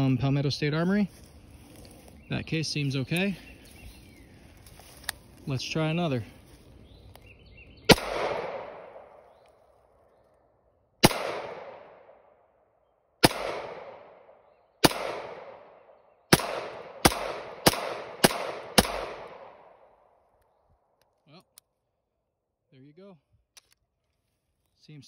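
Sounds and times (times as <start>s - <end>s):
pistol gunshots with echo: 7.8s - 9.2s, 11.0s - 12.4s, 13.2s - 19.9s.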